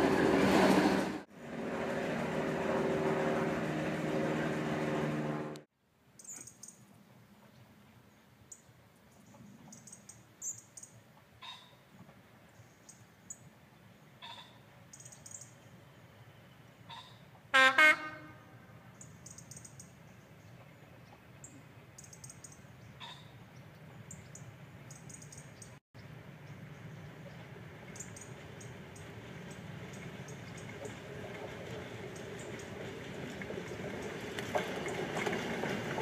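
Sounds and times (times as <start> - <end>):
train horn blasts: 17.5 - 18.8
faint low engine rumble: 25.6 - 35.0.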